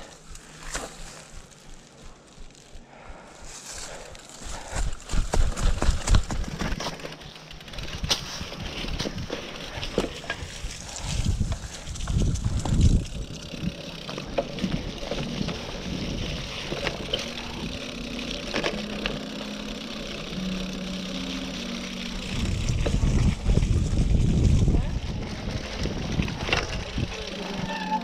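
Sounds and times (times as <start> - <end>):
bike chain and frame rattling: 0.0 - 28.0
bike tyres rolling on dirt: 0.0 - 28.0
wind buffeting microphone: 10.3 - 13.8, 22.2 - 27.4.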